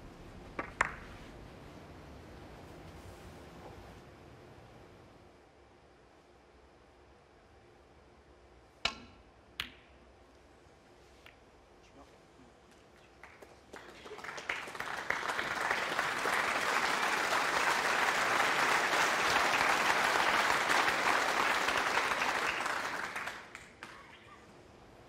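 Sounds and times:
audience applauding: 13.0s - 24.3s.

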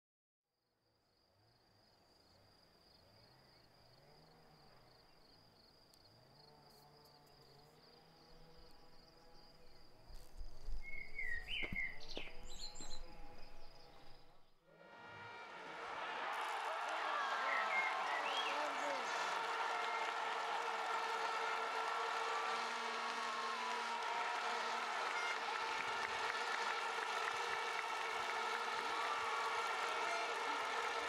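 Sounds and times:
bird chirps: 9.5s - 14.4s.

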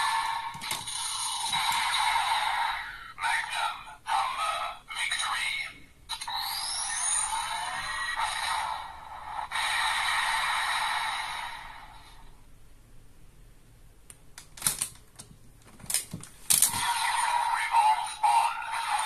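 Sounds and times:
toy electronic sound effect: 6.1s - 11.6s, 16.7s - 19.0s.

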